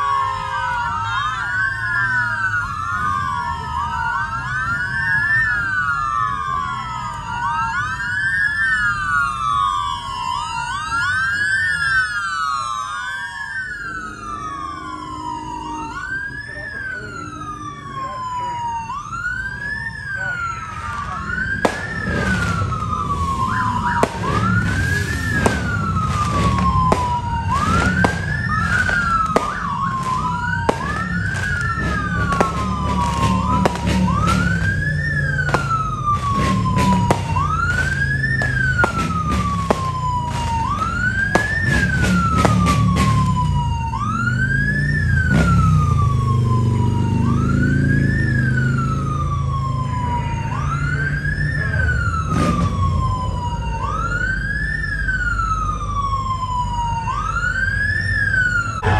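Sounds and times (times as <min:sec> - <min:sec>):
engine revving: 0:00.0 - 0:12.5, 0:13.6 - 0:57.4
police siren wailing: 0:00.0 - 0:58.9
vehicle engines rumbling: 0:00.0 - 0:58.9
firecracker pops: 0:21.6 - 0:43.6.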